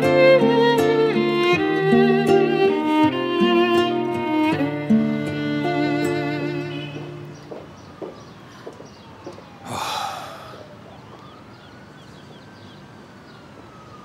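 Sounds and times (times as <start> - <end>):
distant siren rising and falling: 0.0 - 14.0
soft footstep clicks: 6.9 - 9.6.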